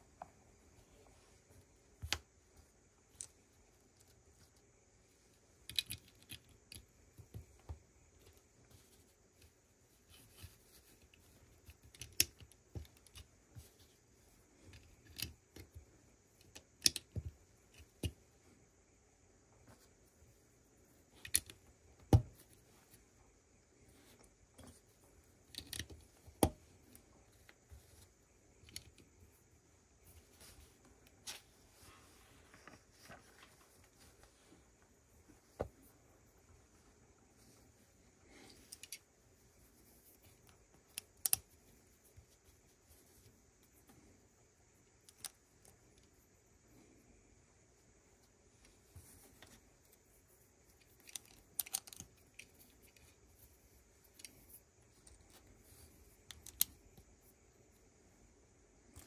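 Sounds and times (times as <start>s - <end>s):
plastic bricks clicking: 5.6s - 6.9s, 11.6s - 13.3s, 16.4s - 18.2s, 21.2s - 22.2s, 25.4s - 26.6s, 45.0s - 45.8s, 50.8s - 53.1s, 56.2s - 56.8s
plastic bricks snapping together: 5.6s - 7.8s, 11.6s - 13.3s, 16.4s - 18.2s, 50.8s - 52.2s.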